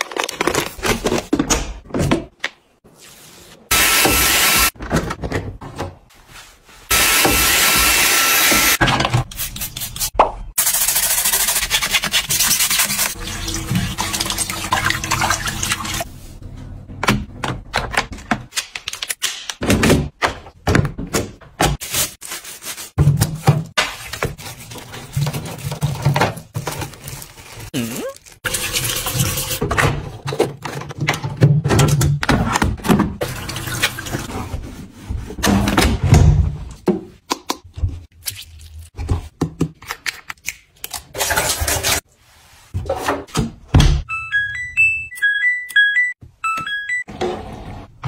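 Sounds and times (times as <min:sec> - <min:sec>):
tap water running and splashing: 0:12.9 - 0:16.0, 0:28.5 - 0:29.6.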